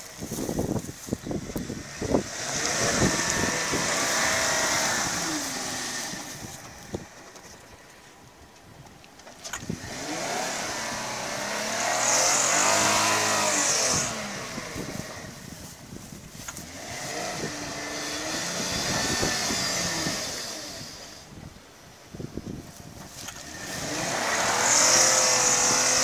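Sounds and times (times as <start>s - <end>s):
car engine revving: 1.4s - 7.3s, 9.6s - 21.2s, 23.0s - 26.0s.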